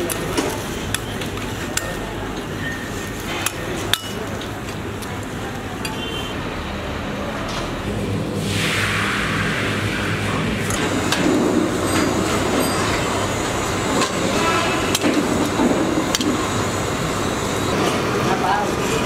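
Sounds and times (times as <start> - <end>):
steady background noise: 0.0 - 19.0
steel utensils clinking: 1.6 - 4.5, 11.1 - 16.3.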